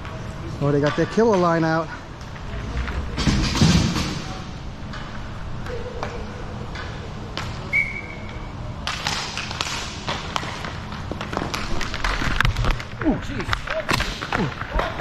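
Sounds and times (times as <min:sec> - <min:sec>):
hockey sticks and skates clacking: 0:00.0 - 0:04.1, 0:08.2 - 0:15.0
skates scraping: 0:08.9 - 0:15.0.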